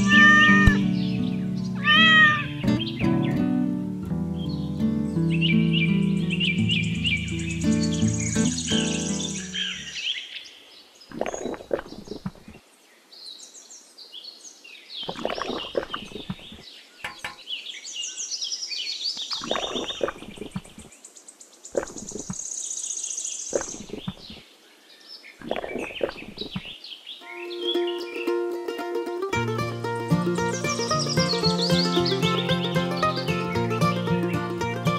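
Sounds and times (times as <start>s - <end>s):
birds chirping: 0.0s - 3.6s, 4.4s - 28.7s, 29.4s - 34.9s
water beads clicking and tapping: 15.1s - 17.4s.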